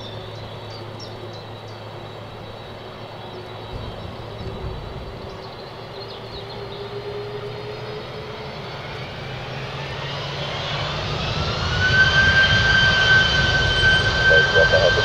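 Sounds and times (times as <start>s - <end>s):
low jet engine rumble: 0.0s - 15.0s
jet engine whine rising: 5.5s - 15.0s.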